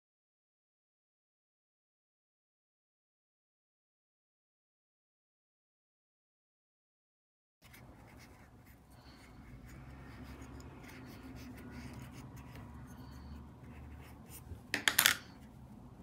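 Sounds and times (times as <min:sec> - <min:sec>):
scratchy rubbing of yarn: 0:07.6 - 0:14.7.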